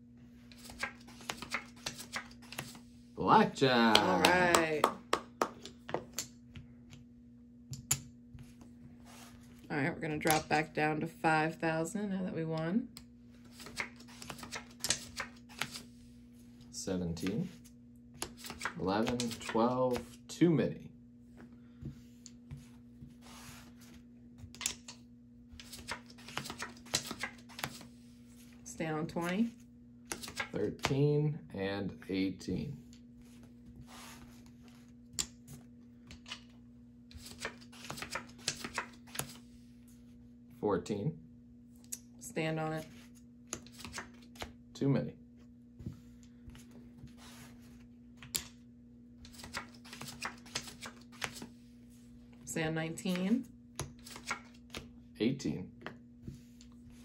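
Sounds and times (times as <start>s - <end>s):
cards being dealt: 0.5s - 2.8s, 13.4s - 15.9s, 17.2s - 20.2s, 25.6s - 28.0s, 30.0s - 31.0s, 32.9s - 39.4s, 43.0s - 44.6s, 49.2s - 51.6s, 53.8s - 54.9s
cards swished on felt: 0.5s - 2.9s, 13.4s - 16.2s, 21.8s - 24.0s, 33.2s - 34.9s, 45.8s - 47.9s.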